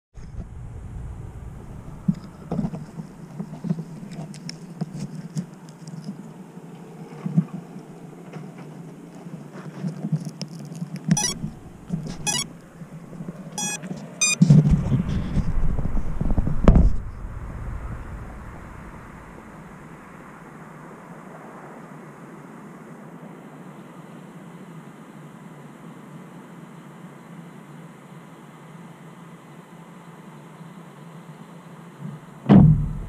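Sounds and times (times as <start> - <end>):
rumbling: 0.2 - 4.7, 11.2 - 13.7, 14.6 - 20.5
microphone handling rubbing and bumps: 11.1 - 19.4.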